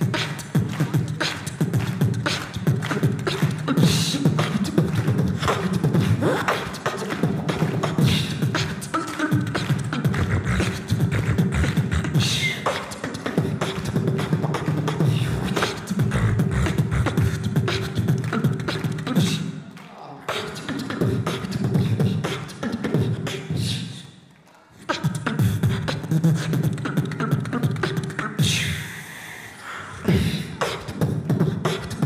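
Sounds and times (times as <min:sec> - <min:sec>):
person beatboxing into microphone: 0:00.0 - 0:32.0.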